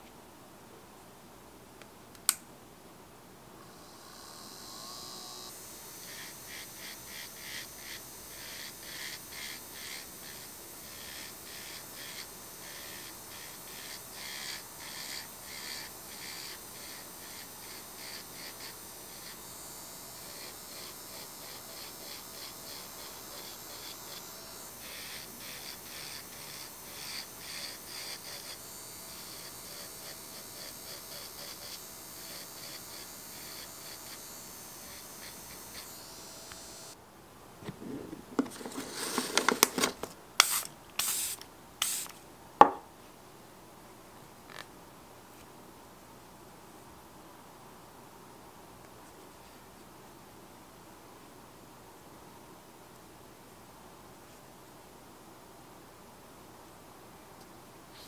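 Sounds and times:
electric nail drill whine: 3.6s - 37.0s
scratchy drill bit strokes: 3.8s - 37.0s, 40.4s - 42.1s.

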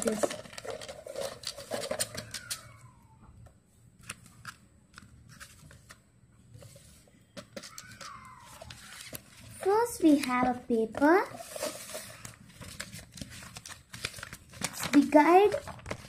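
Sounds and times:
paper rustling: 0.0s - 2.7s, 4.0s - 16.0s.

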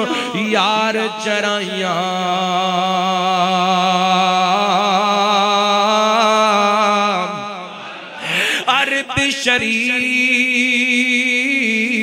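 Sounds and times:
man chanting: 0.0s - 12.0s.

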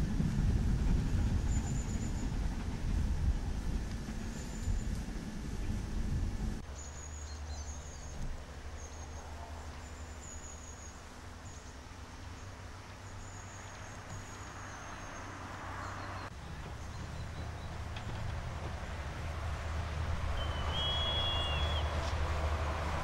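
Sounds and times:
low train rumble: 0.0s - 23.0s
steam locomotive humming: 0.0s - 23.0s
birds chirping: 6.6s - 19.1s, 19.8s - 22.1s.

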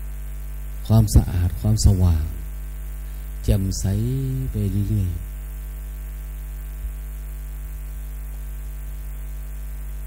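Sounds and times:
background hiss: 0.0s - 10.0s
electrical mains hum: 0.0s - 10.0s.

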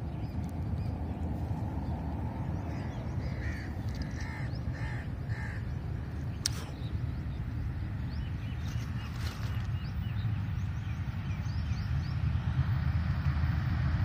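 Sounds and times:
distant locomotive rumble: 0.0s - 14.0s
crow cawing: 2.7s - 5.8s.

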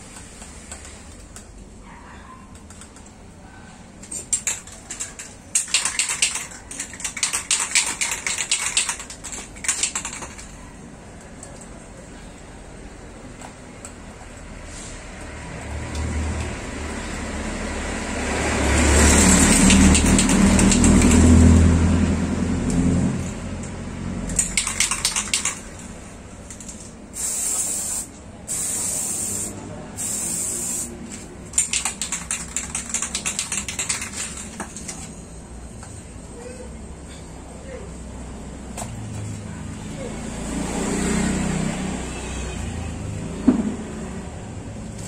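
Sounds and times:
spray can rattling: 4.0s - 10.6s, 18.9s - 21.6s, 24.3s - 34.9s
spray can spraying: 19.0s - 21.4s, 24.4s - 25.7s, 27.1s - 34.5s.

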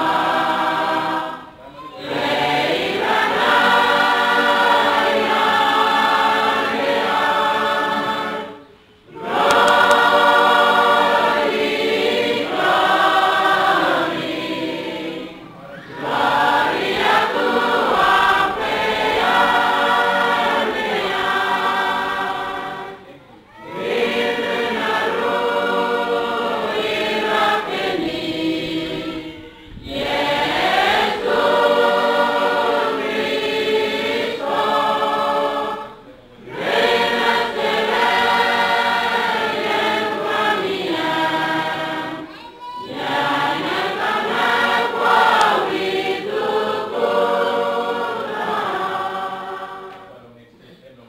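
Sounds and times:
choir singing: 0.0s - 50.2s.

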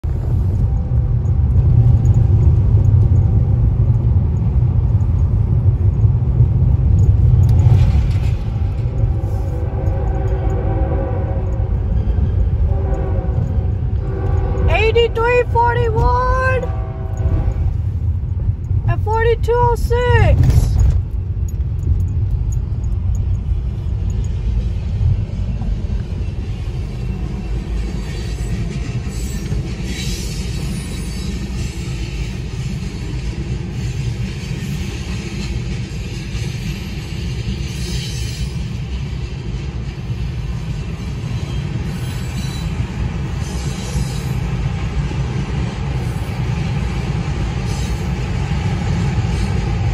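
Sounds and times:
car engine rumble: 0.0s - 27.0s
road noise inside car: 0.0s - 27.7s.

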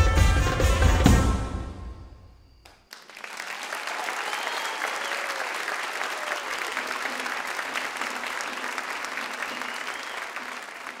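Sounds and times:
audience applauding: 2.7s - 11.0s.

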